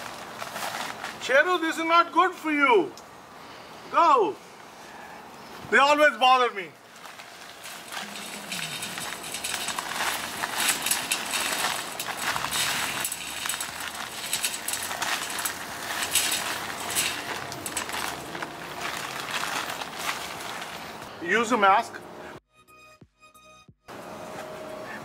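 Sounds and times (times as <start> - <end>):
dry concrete mix pouring: 7.0 - 21.0.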